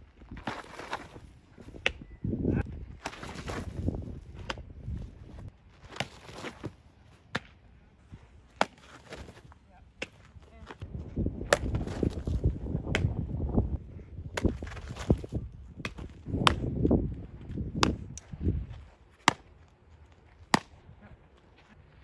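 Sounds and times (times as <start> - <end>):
softball smacking into leather mitt: 15.8 - 16.7.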